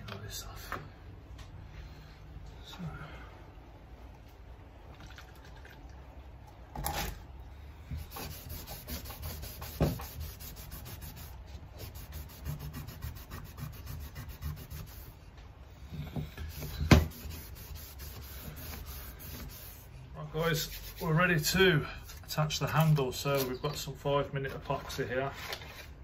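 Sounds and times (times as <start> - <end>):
cloth rubbing on metal blade: 16.5 - 21.5.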